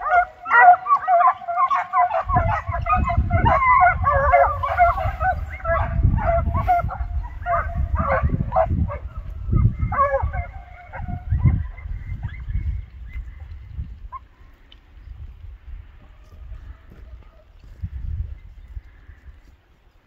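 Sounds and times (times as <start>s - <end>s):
hounds baying: 0.0s - 14.4s.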